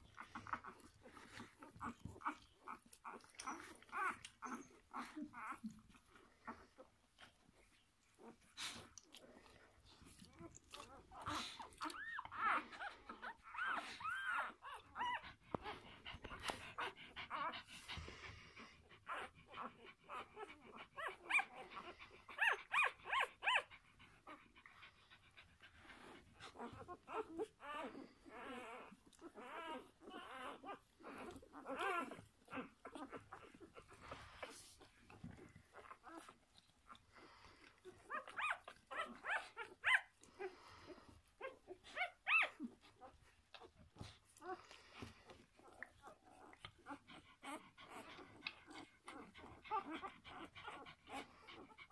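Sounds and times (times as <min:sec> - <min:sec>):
faint clicks and rustles: 0:00.0 - 0:51.9
puppies squeaking and whimpering: 0:00.0 - 0:51.9.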